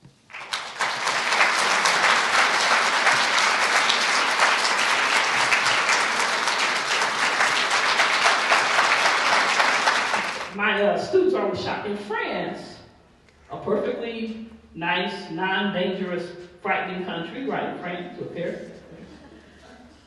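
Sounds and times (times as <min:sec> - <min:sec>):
large audience applauding: 0:00.0 - 0:10.6.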